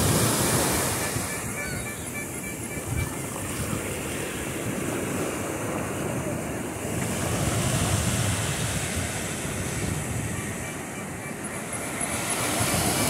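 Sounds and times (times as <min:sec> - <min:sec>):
surf breaking on a beach: 0:00.0 - 0:13.0
wind buffeting the microphone: 0:02.8 - 0:11.2.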